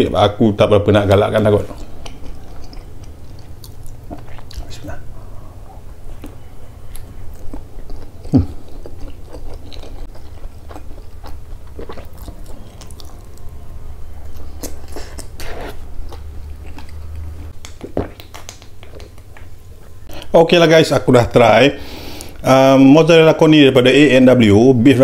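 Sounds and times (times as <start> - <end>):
wet mouth sounds: 1.6 - 13.3, 14.3 - 19.6
person chewing food: 1.6 - 20.2.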